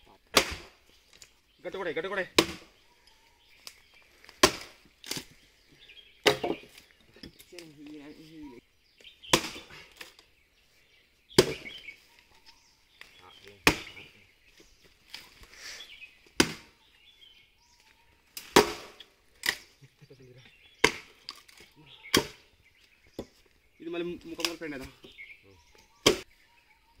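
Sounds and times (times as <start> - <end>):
axe chopping log: 0.2 - 0.8, 2.2 - 2.8, 4.3 - 5.3, 6.2 - 7.4, 9.3 - 10.1, 11.4 - 11.9, 13.6 - 14.0, 16.3 - 16.7, 18.4 - 19.7, 20.8 - 22.4, 26.0 - 26.3.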